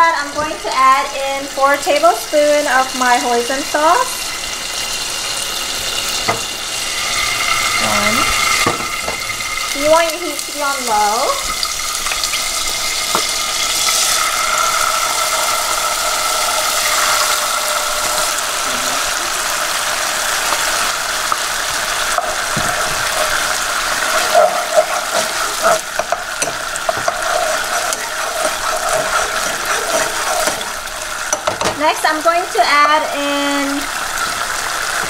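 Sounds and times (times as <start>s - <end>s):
sauce sizzling in oil: 0.0s - 35.0s
spoon knocking against pan: 24.2s - 31.8s.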